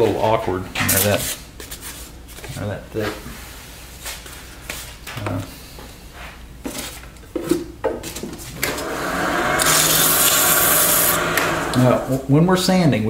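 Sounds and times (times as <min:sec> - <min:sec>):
wood lathe spinning: 0:08.6 - 0:12.2
sandpaper hissing on spinning wood: 0:08.8 - 0:12.2.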